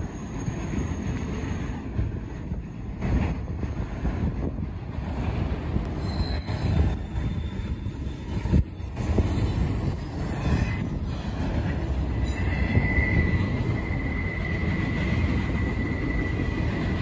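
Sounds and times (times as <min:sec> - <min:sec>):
train wheels rumbling on rail: 0:00.0 - 0:17.0
high-pitched wheel squeal: 0:05.9 - 0:17.0.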